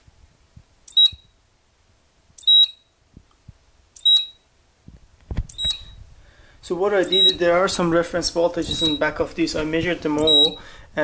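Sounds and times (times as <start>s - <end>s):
oscilloscope high beep: 0.9s - 1.3s, 2.4s - 2.9s, 4.0s - 4.4s, 5.5s - 6.0s, 7.0s - 7.4s, 8.7s - 9.1s, 10.2s - 10.6s.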